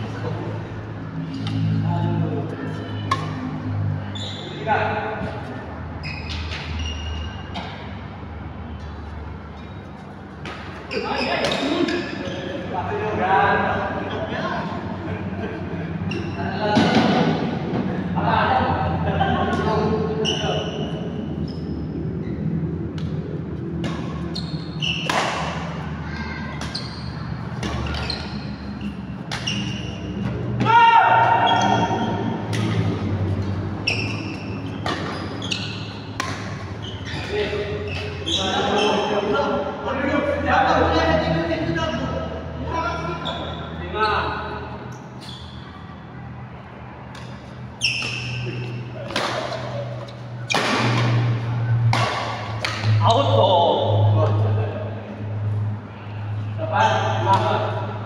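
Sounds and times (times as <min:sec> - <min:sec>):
low hum of hall: 0:00.0 - 0:58.0
shoes squeaking on court: 0:02.6 - 0:08.0, 0:08.7 - 0:12.8, 0:16.0 - 0:16.6, 0:19.6 - 0:25.8, 0:26.5 - 0:30.6, 0:31.4 - 0:39.3, 0:43.0 - 0:46.0, 0:47.0 - 0:53.2
racket hitting shuttlecock: 0:03.1 - 0:03.5, 0:24.9 - 0:25.8, 0:29.2 - 0:33.1, 0:33.9 - 0:38.1, 0:47.1 - 0:53.0.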